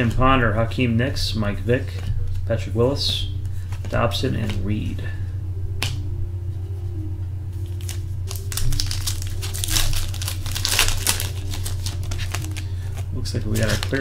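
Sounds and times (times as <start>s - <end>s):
steady low hum: 0.0s - 14.0s
foil wrapper crinkling and tearing: 7.6s - 14.0s.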